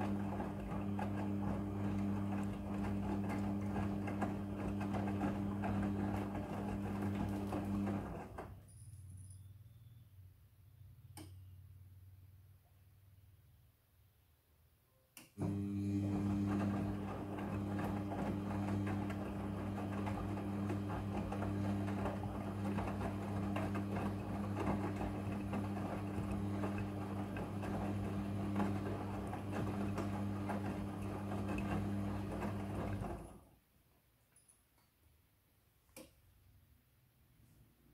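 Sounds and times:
wet laundry tumbling: 0.0s - 8.4s, 15.4s - 33.4s
washing machine drum motor humming: 0.0s - 8.5s, 15.4s - 33.5s.

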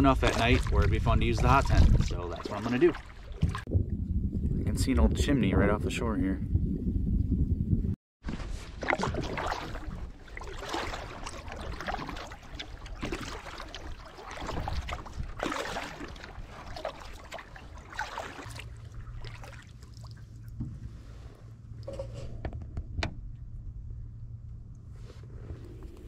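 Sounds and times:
paddle strokes splashing: 0.0s - 3.7s, 8.2s - 21.3s
water washing along hull: 0.0s - 3.7s, 8.2s - 21.4s.

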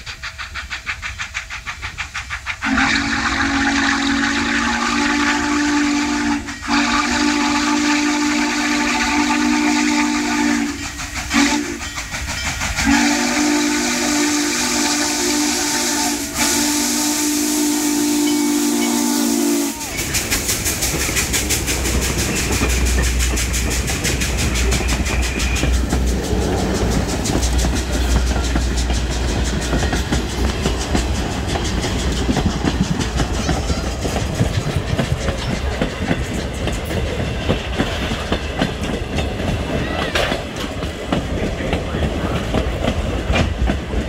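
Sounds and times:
steam locomotive hiss: 0.0s - 44.0s
train rolling past with low rumble: 0.0s - 44.0s
wheels clicking over rail joints: 10.7s - 13.0s, 19.8s - 44.0s.

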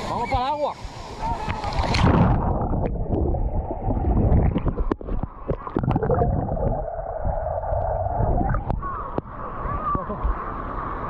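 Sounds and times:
underwater rumble and gurgling: 1.3s - 11.0s
bubble clicks: 4.3s - 6.8s.

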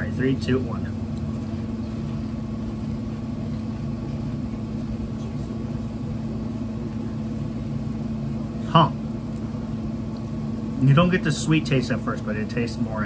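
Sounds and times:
room hum: 0.0s - 13.0s.

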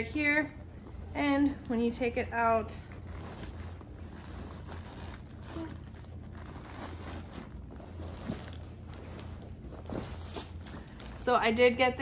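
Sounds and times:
low hum: 0.0s - 12.0s
fabric bag rustling: 2.5s - 11.4s.

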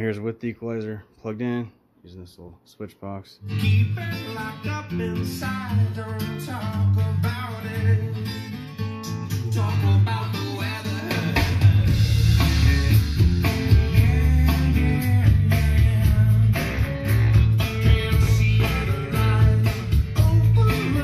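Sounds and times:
guitar music over loudspeakers: 3.4s - 21.0s.

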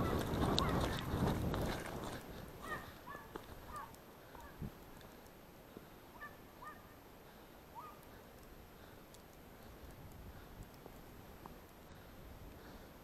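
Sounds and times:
distant dog yelping: 2.6s - 4.6s, 6.2s - 6.9s, 7.8s - 8.0s.

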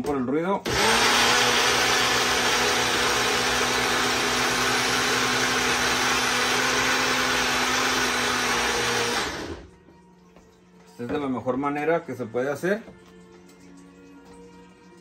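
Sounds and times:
blender running: 0.6s - 9.7s.

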